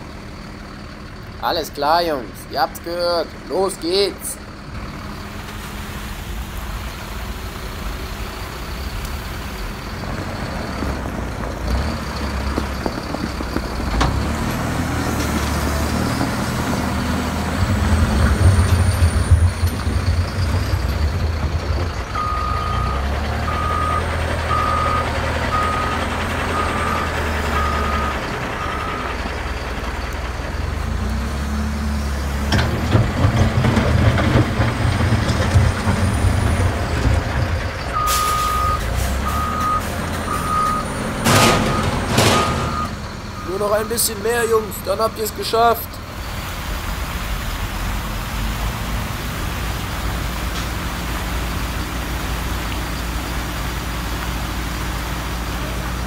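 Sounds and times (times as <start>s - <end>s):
truck engine rumbling: 0.0s - 56.0s
reversing alarm beeping: 22.2s - 29.2s, 38.0s - 44.6s.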